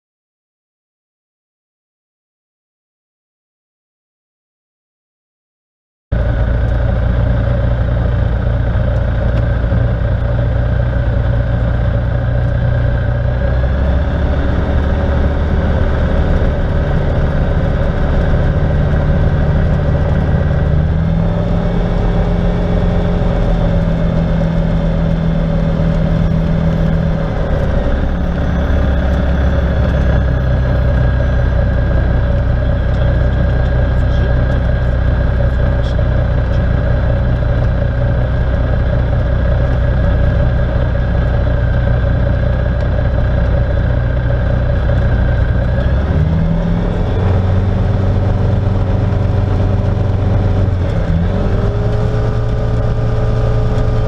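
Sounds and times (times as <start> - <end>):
light aircraft engine droning: 6.2 - 54.0.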